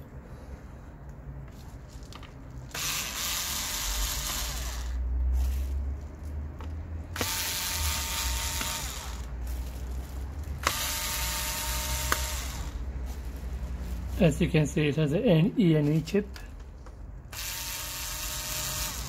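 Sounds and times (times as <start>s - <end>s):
electric screwdriver whirring: 2.7s - 5.0s, 7.1s - 9.3s, 10.6s - 12.8s, 17.3s - 19.0s.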